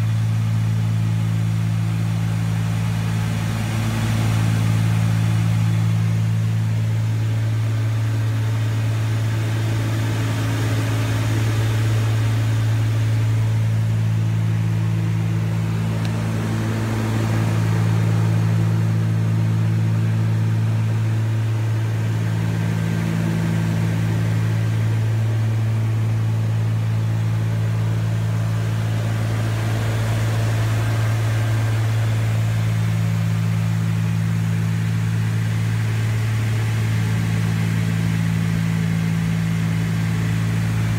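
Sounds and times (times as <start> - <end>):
aircraft engines droning in cabin: 0.0 - 40.9.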